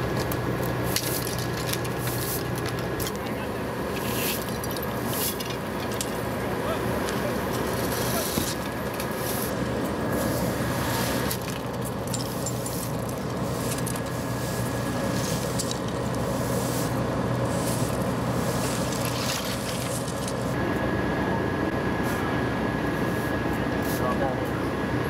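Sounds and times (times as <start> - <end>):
push brooms scraping asphalt: 0.0 - 20.6
diesel engines idling: 0.0 - 25.0.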